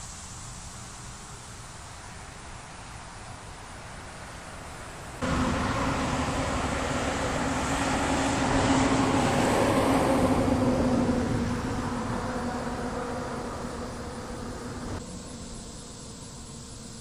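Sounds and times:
tyre and road noise: 0.6 - 15.1
truck diesel engine hum: 5.0 - 16.1.

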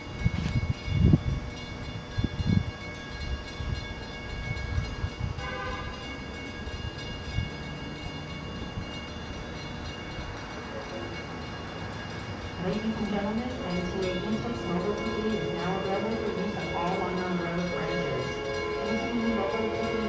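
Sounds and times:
diesel locomotive rumble: 0.0 - 20.0
steady high tones: 0.0 - 20.0
short pitched horn blast: 5.4 - 6.0.

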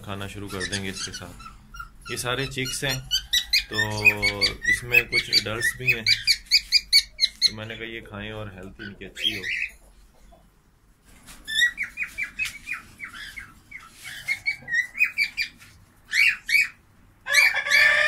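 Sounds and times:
cockatiels chirping: 0.4 - 7.6, 8.7 - 9.9, 11.5 - 17.7
cockatiel screech: 16.1 - 18.0.

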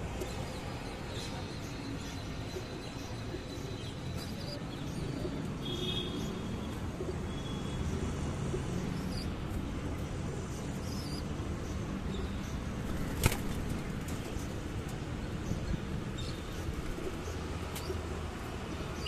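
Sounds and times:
city traffic rumble: 0.0 - 19.0
pigeons flapping wings: 12.8 - 14.4.

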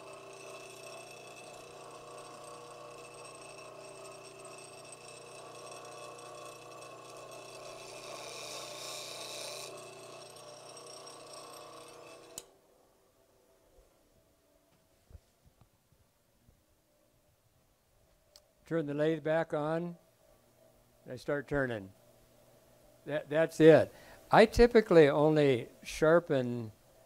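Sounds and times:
bench grinder humming: 0.0 - 12.5
tool grinding hiss: 0.0 - 12.5.

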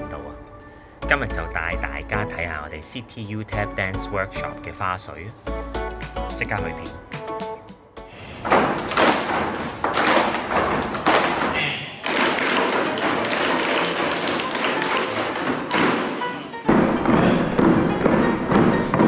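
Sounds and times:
tap shoes on wooden boards: 8.4 - 19.0.

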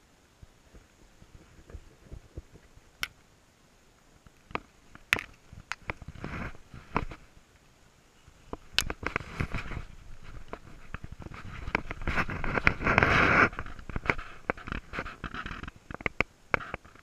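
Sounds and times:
sharp clicks and knocks: 4.4 - 6.2, 10.3 - 17.0
short rustle: 8.2 - 16.0.

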